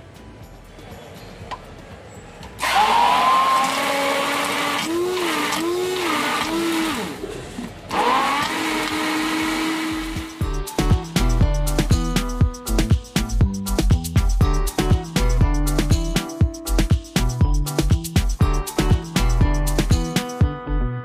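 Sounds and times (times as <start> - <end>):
hand blender whining: 2.6 - 10.4.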